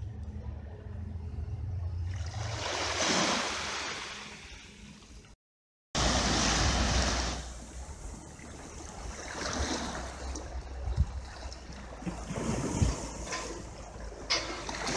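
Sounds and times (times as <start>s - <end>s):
surf washing over rocks: 6.0s - 8.1s
waves washing on sandy shore: 6.0s - 14.9s.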